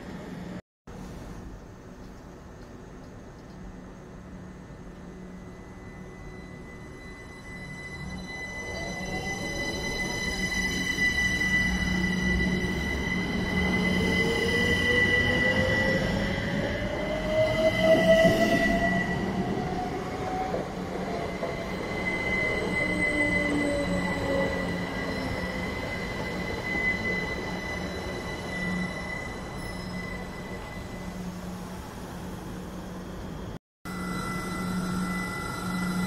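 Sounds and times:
diesel train whine: 3.7s - 36.0s
high squeal: 5.6s - 31.6s, 33.9s - 36.0s.

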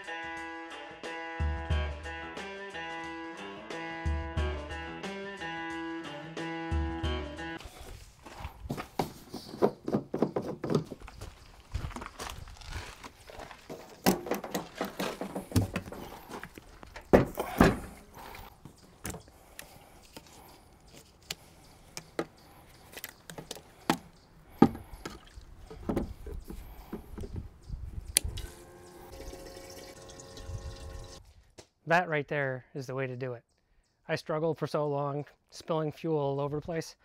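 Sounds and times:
fuel can clunks and clicks: 13.7s - 18.0s, 23.3s - 27.5s
fuel pouring into a tank: 29.0s - 31.2s.

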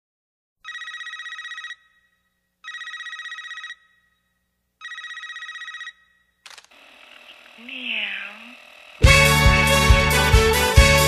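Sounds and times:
telephone ringing: 0.6s - 9.1s.

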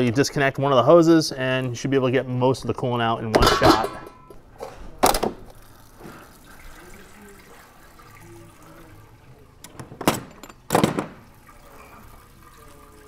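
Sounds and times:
coolant pouring into drain pan: 5.4s - 9.6s, 11.2s - 13.0s.

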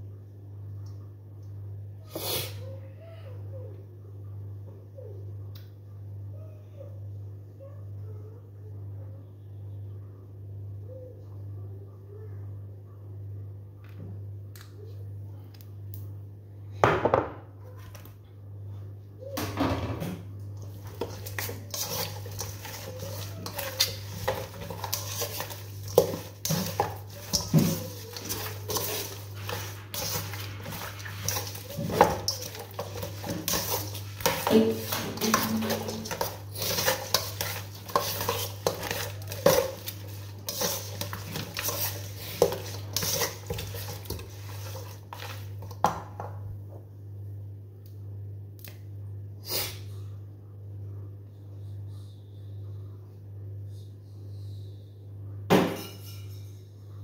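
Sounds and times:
knife scraping a metal bowl: 20.6s - 45.8s.

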